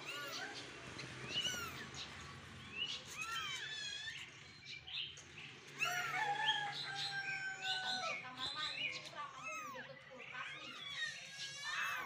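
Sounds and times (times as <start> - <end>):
kittens mewing: 0.0 - 2.1, 3.0 - 4.4, 9.2 - 12.0.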